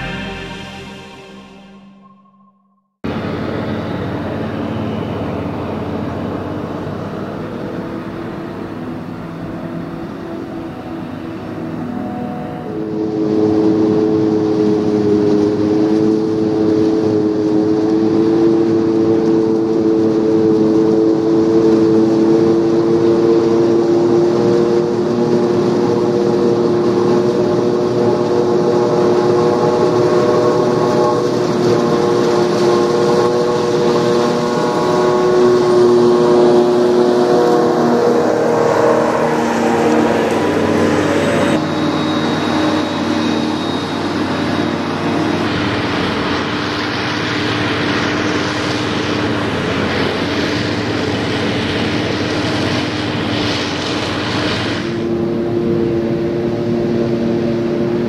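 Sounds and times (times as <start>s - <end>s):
forage harvester droning: 0.0s - 2.5s, 3.1s - 58.0s
tractor engine running: 13.0s - 58.0s.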